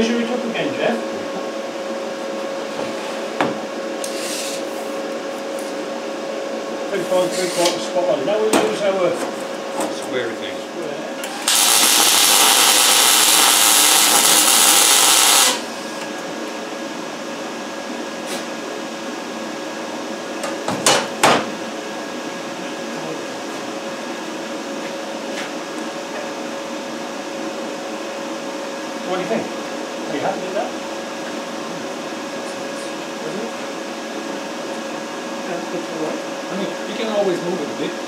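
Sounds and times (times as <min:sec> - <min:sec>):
welder arc hissing: 0:04.0 - 0:04.7, 0:11.2 - 0:15.8.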